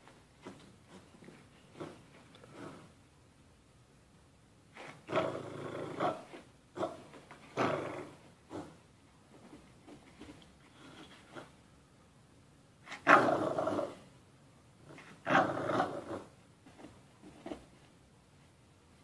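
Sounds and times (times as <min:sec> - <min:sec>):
dogs growling in play: 0:04.8 - 0:08.8, 0:12.9 - 0:14.0, 0:15.0 - 0:16.4.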